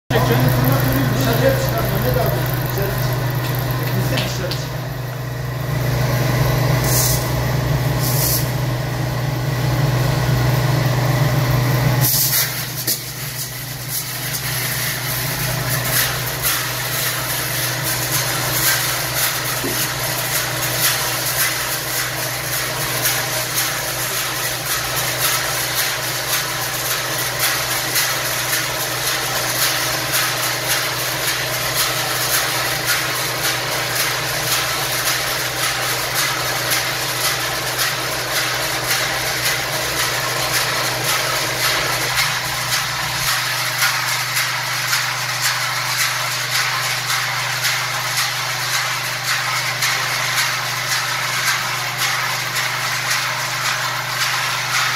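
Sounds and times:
roasting machine hum: 0.1 - 54.9.

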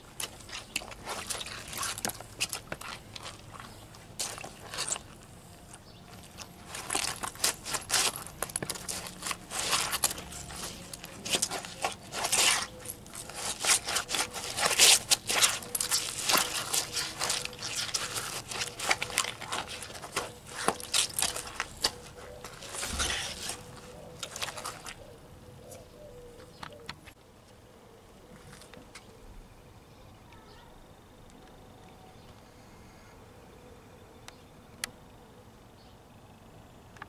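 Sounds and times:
wet boots squelching on paving: 0.0 - 25.1.

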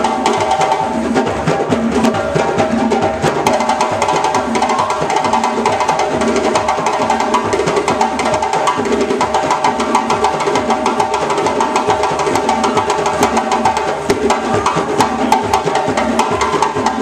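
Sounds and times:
djembe hand drums: 0.0 - 17.0.

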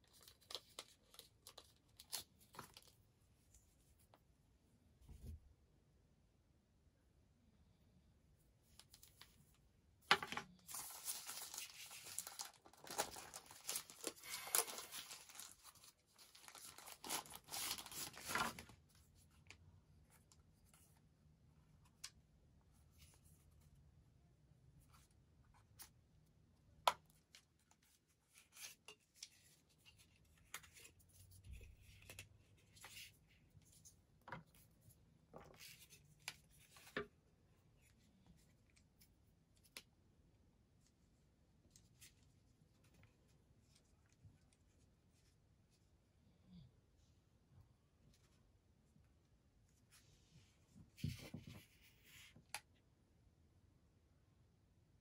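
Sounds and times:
paper wrapping rustling and tearing: 10.6 - 18.8.

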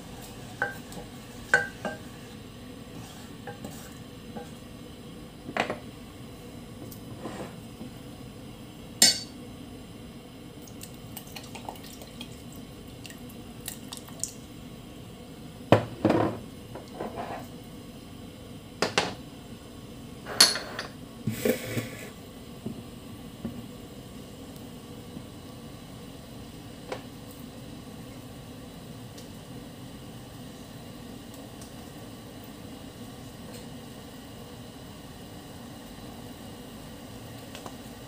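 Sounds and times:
utensil scraping a saucepan: 0.0 - 4.6, 7.2 - 7.6, 16.9 - 17.5.

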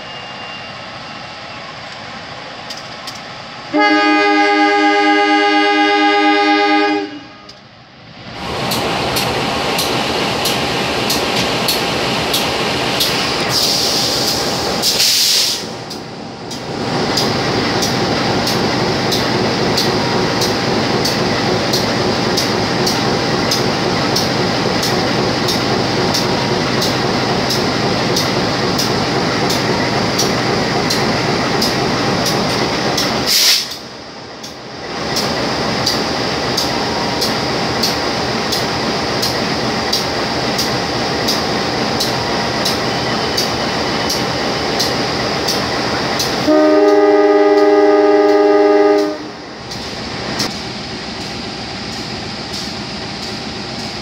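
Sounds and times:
diesel locomotive engine running: 0.0 - 54.0
short loud hiss: 14.9 - 15.7, 33.3 - 33.8.

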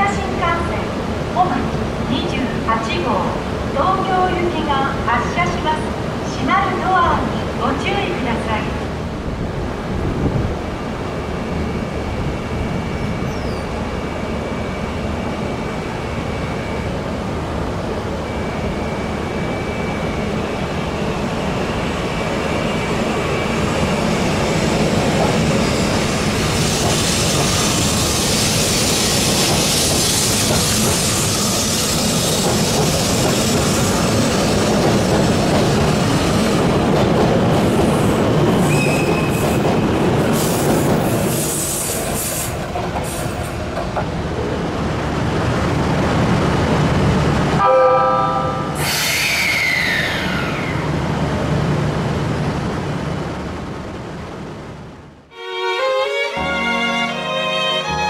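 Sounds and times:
train wheels running past: 18.1 - 47.6.

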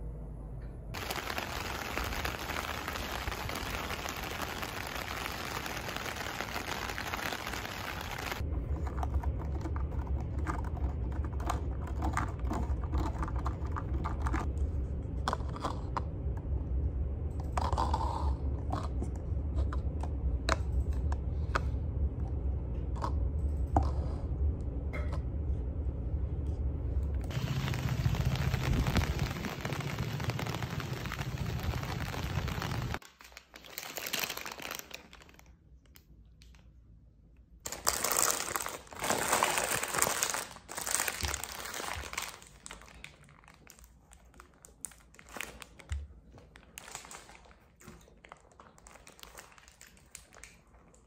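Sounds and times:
steady low hum: 0.0 - 6.0, 8.0 - 33.0.

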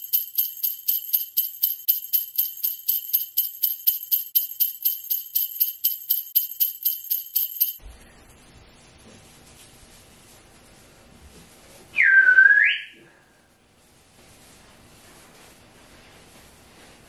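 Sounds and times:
jingle bells shaken: 0.0 - 7.8.

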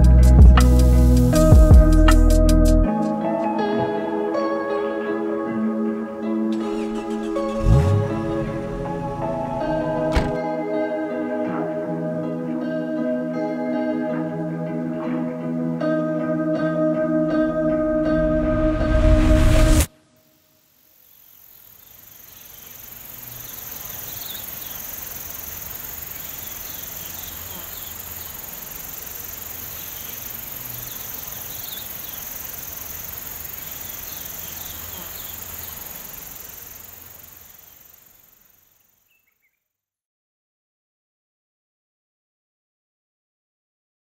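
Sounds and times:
music: 0.0 - 19.9
insect chirps: 19.9 - 39.6
insects buzzing high-pitched: 20.8 - 39.5.

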